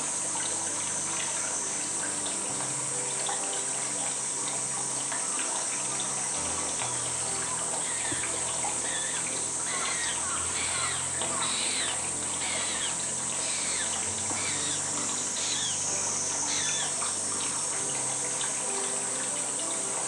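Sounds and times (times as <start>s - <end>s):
running water hiss: 0.0s - 20.0s.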